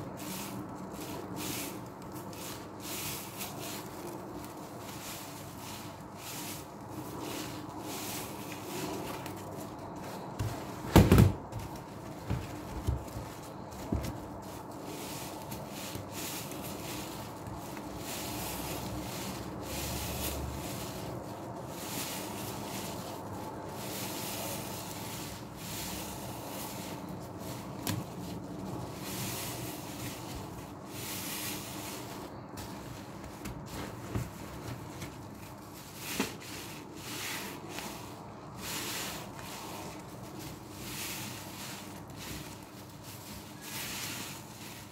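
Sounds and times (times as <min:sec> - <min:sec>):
sponges squelching in suds: 0:11.4 - 0:44.9.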